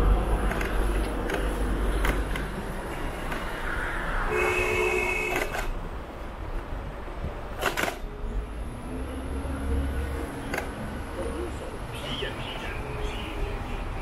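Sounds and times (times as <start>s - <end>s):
sharp clicks: 0.4s - 2.6s, 5.3s - 5.8s.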